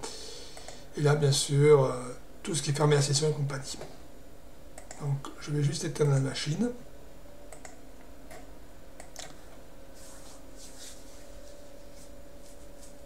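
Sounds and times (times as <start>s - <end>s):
faint steady hum: 0.0s - 13.0s
computer mouse clicks: 4.8s - 5.0s, 7.5s - 9.4s
soft hissy puffs: 10.0s - 13.0s.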